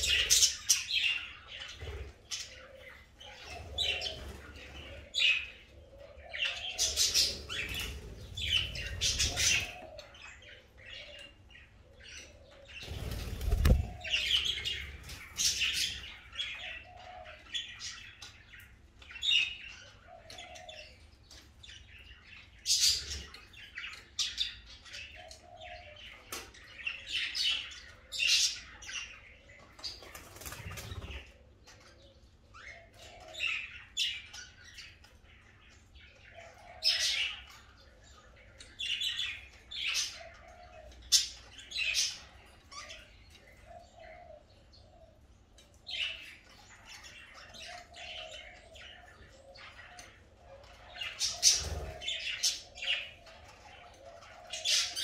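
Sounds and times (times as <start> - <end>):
budgerigars chattering and chirping: 0.0 - 21.0, 45.9 - 55.0
wings flapping: 12.8 - 14.1.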